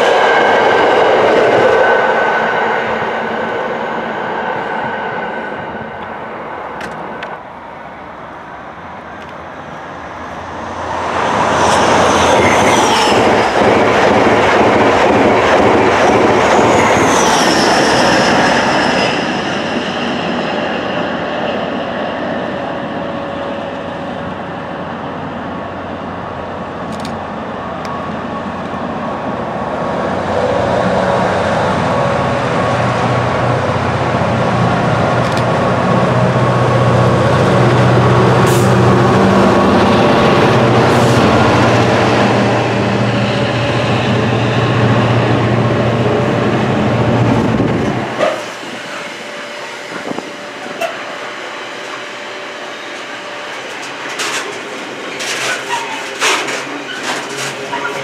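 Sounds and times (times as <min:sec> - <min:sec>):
diesel locomotive engine: 0:00.0 - 0:58.0
train wheel and rail noise: 0:00.0 - 0:58.0
high wheel squeal: 0:55.2 - 0:58.0.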